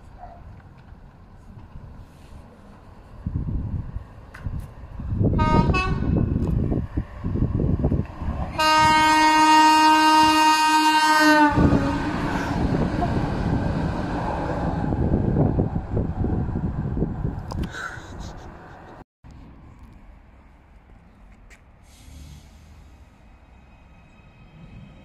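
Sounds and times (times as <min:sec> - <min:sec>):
train horn blasts: 0:05.3 - 0:06.3, 0:08.6 - 0:12.2.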